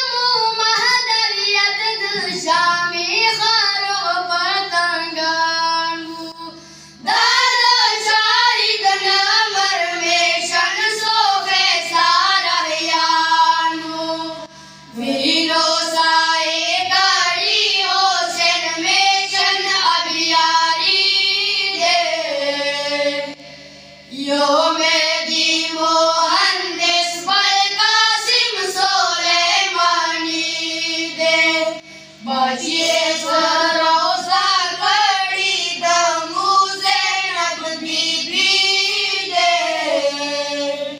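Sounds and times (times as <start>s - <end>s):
boys singing together: 0.0s - 23.4s, 24.1s - 40.9s.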